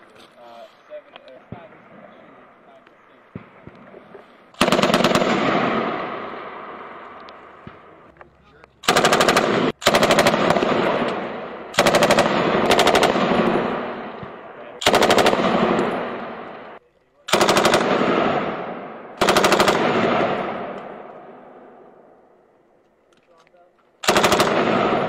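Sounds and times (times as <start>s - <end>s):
gunfire echo: 3.3s - 8.1s, 8.8s - 22.1s, 24.0s - 25.0s
machine gun bursts: 4.6s - 5.4s, 8.8s - 10.8s, 17.3s - 18.0s, 19.2s - 20.0s, 24.0s - 25.0s.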